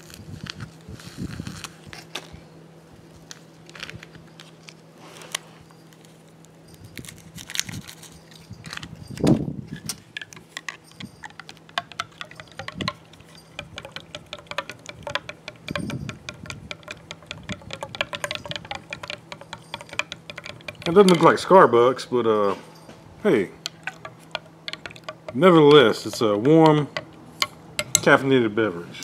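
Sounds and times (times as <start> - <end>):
spoon clinking against glass: 10.6 - 21.5, 22.7 - 28.2
powder pouring into glass: 11.4 - 21.4.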